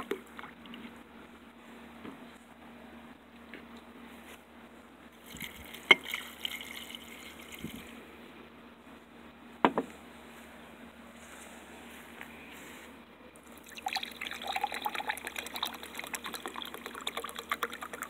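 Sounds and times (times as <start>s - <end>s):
liquid pouring and splashing: 5.3s - 7.9s, 13.6s - 18.0s.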